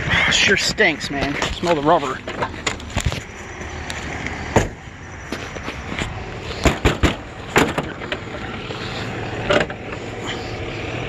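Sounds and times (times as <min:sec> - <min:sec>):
steady low rumble: 0:00.0 - 0:11.0
sharp metal clunks and knocks: 0:04.5 - 0:04.8, 0:05.4 - 0:08.5, 0:09.4 - 0:10.0.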